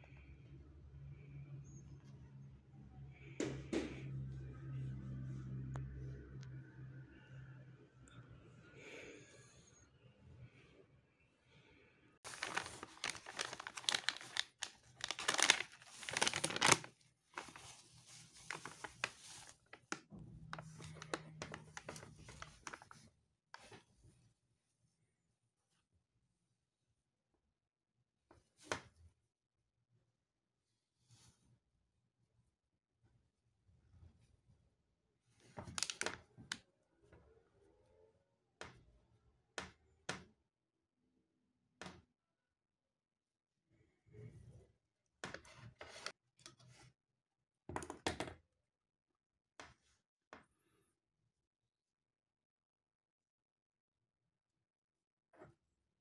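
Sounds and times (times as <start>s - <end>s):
plastic packet crinkling: 12.3s - 20.0s, 20.6s - 23.0s, 35.7s - 36.2s.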